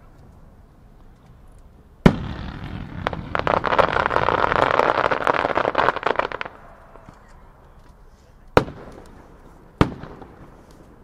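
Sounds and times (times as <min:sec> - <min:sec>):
crackle of firework pops: 0:01.1 - 0:09.2
loud firework bang: 0:02.0 - 0:04.8.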